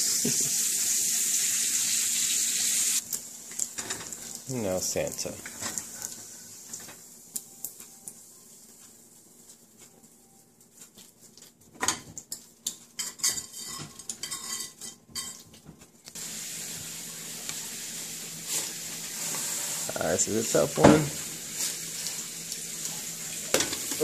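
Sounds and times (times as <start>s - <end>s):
pancake batter sizzling: 0.0s - 9.6s, 11.9s - 24.0s
utensils clinking against dishes: 11.8s - 15.8s, 23.5s - 24.0s.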